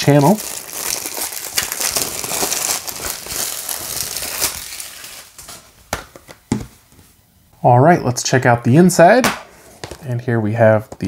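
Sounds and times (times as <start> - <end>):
plastic wrap crinkling: 0.0 - 6.6.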